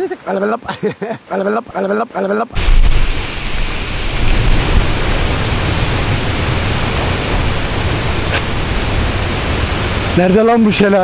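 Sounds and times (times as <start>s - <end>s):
mountain stream rushing: 0.0s - 11.0s.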